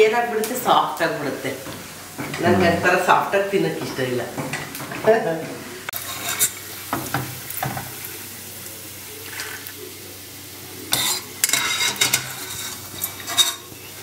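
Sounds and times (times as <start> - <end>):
scrapes in a strainer: 10.9 - 13.8.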